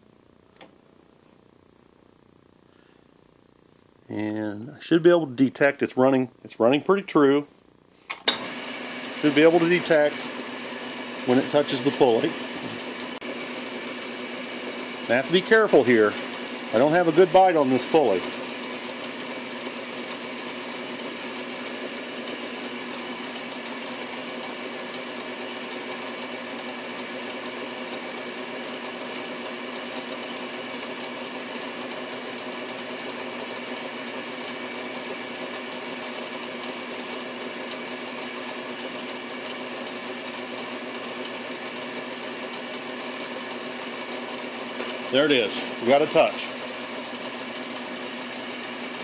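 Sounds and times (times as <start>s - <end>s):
lathe steady whine: 4.1s - 49.0s
metal lathe humming: 8.3s - 49.0s.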